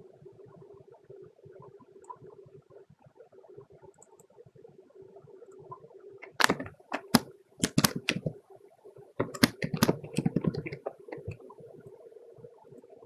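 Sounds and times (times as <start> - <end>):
faint steady hum: 0.0 - 13.0
typing on a computer keyboard: 6.2 - 8.3, 9.2 - 11.4.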